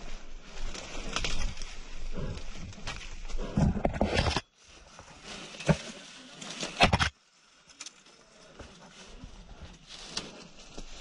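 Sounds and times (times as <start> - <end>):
twigs snapping: 0.6 - 1.8
footsteps crunching through dry leaves: 4.6 - 11.0.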